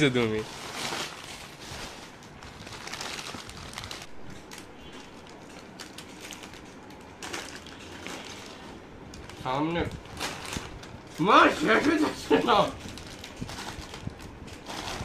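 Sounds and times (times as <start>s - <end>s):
snack wrappers crinkling: 0.3s - 12.0s.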